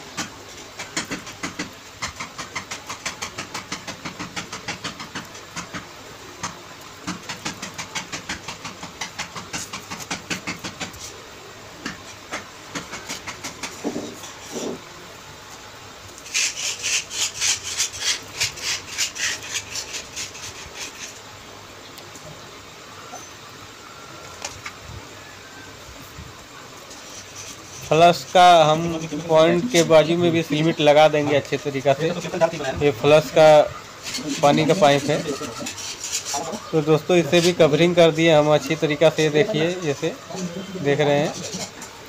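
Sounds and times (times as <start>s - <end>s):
hand scraping mortar on tiles: 16.2s - 21.2s, 26.9s - 30.2s, 34.0s - 37.7s.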